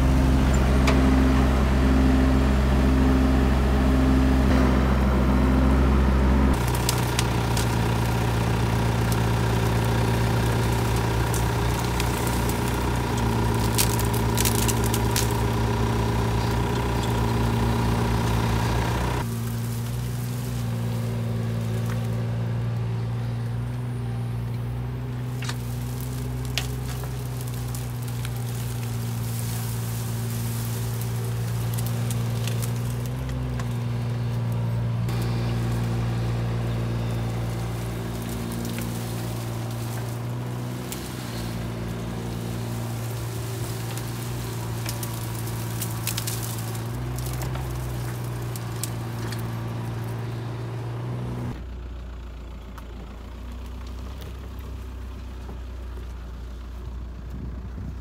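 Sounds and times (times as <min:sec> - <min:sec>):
heavy machine engine drone: 0:00.0 - 0:58.0.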